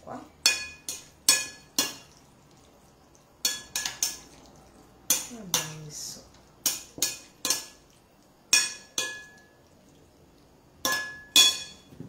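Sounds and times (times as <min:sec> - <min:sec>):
metal spoon clinking on bowl: 0:08.5 - 0:09.6, 0:10.8 - 0:11.9.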